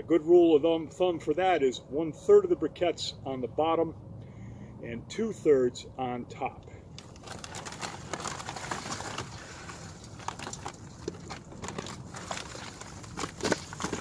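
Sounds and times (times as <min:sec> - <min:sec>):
charcoal briquettes clattering: 0:07.0 - 0:14.0.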